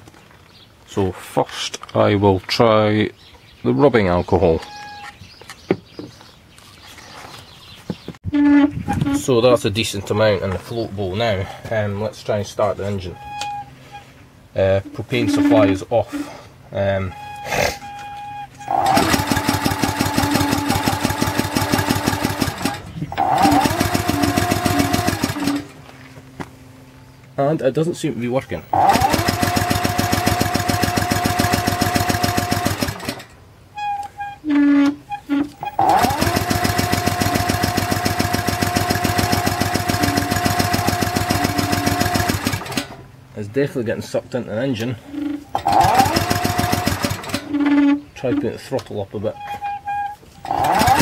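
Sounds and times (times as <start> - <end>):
steady whine: 8.9 - 29.1
petrol engine cranking: 14.8 - 16.4, 17.1 - 25.8, 28.6 - 43.1, 44.9 - 48.4, 49.4 - 51.0.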